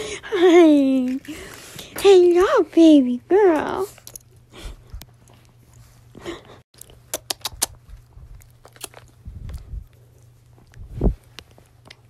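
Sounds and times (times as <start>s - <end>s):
wet mouth clicks and smacks: 6.8s - 9.6s
dog licking and snuffling: 6.8s - 12.0s.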